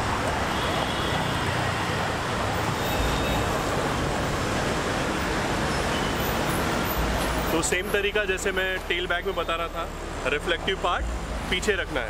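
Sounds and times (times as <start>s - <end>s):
vehicles passing on busy road: 0.0s - 12.0s.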